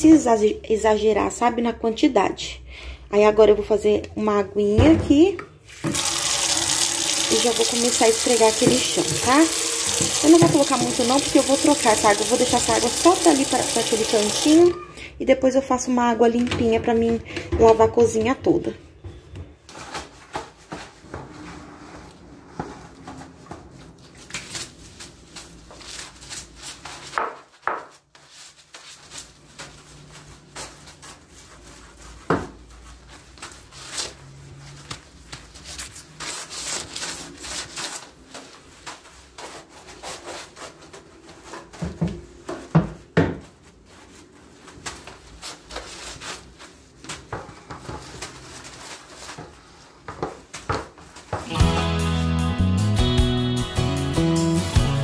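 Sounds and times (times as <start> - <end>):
brush scrubbing wet tiled floor: 5.7 - 14.7, 28.2 - 41.8.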